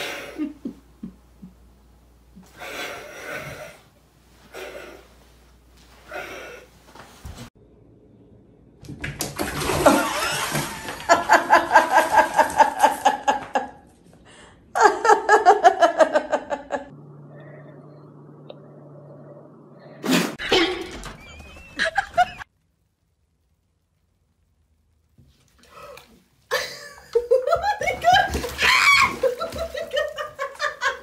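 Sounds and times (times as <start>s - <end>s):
steady low hum: 0.3s - 8.9s, 13.9s - 20.4s
person laughing hard: 21.7s - 22.4s, 26.5s - 31.0s.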